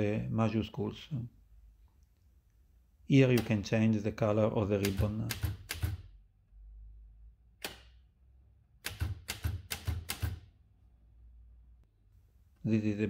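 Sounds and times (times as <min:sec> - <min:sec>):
typewriter clacking: 0:04.8 - 0:06.0, 0:08.9 - 0:10.4.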